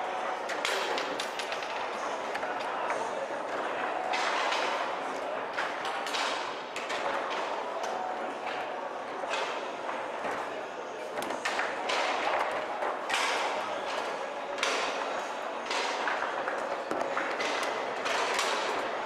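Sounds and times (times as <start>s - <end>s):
steady background noise: 0.0s - 19.0s.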